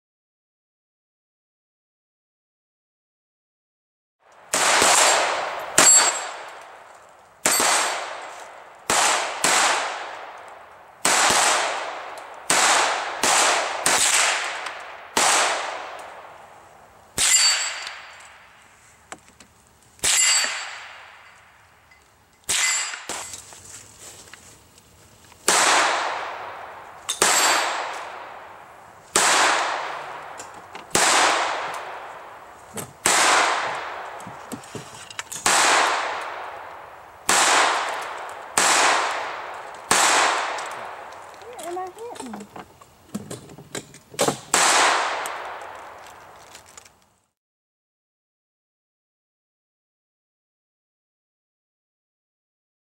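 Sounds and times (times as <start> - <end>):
pistol shots echoing: 4.5 - 6.8, 7.4 - 16.3, 25.5 - 32.4, 33.0 - 34.2, 35.4 - 41.1, 44.3 - 45.8
metallic ring of steel target: 5.0 - 6.5, 17.2 - 18.4, 20.0 - 21.4, 22.4 - 23.4, 27.1 - 27.9.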